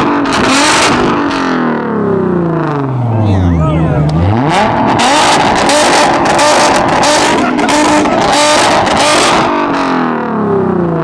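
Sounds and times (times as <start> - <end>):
car engine on rev limiter: 0.0 - 11.0
exhaust popping and banging: 4.1 - 10.1.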